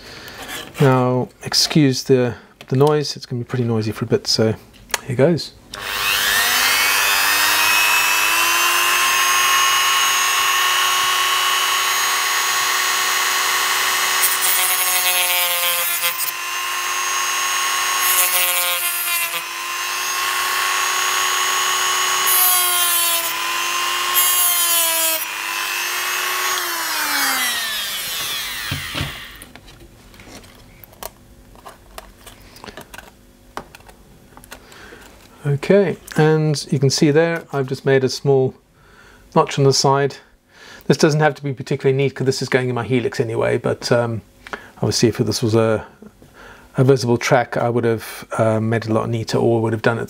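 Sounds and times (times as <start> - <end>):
rotary tool high whine: 5.8 - 29.6.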